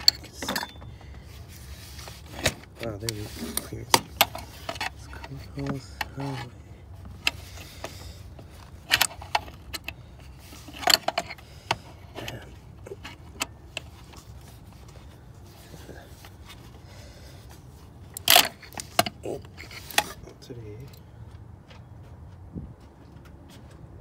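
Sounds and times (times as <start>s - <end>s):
metal clank: 0.0s - 1.1s.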